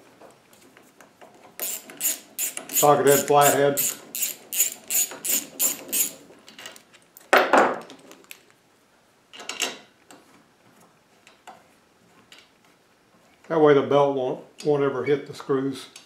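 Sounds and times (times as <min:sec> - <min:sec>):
ratcheting driver clicking: 0:01.6 - 0:06.2.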